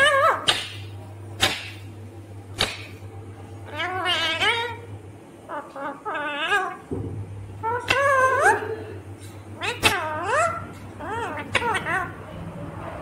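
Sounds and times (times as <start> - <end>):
parakeet whine-like calls: 0.0 - 0.9, 3.6 - 4.9, 5.5 - 6.9, 7.6 - 8.8, 9.6 - 12.6.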